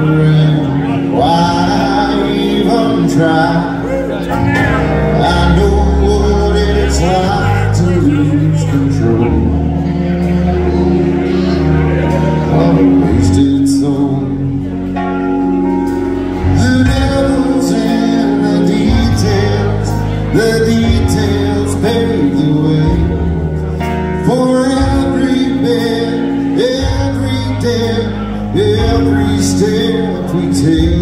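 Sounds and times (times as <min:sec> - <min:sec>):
bass guitar: 0:00.0 - 0:31.0
man singing: 0:00.0 - 0:31.0
piano: 0:00.0 - 0:31.0.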